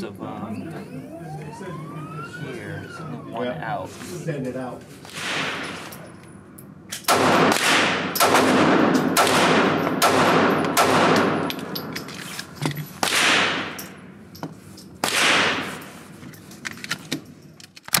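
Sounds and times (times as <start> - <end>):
pistol shots echoing: 5.1 - 6.0, 7.1 - 12.0, 13.0 - 14.0, 15.0 - 15.9.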